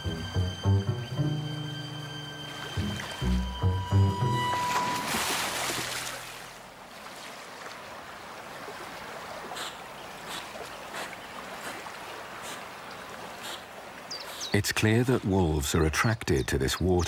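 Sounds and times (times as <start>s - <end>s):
water rushing and splashing: 0.0s - 15.7s
water lapping with soft splashes: 4.4s - 14.5s.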